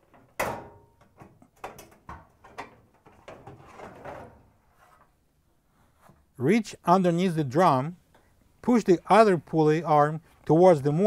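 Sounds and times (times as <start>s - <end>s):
panel knocking and scraping: 0.2s - 5.0s.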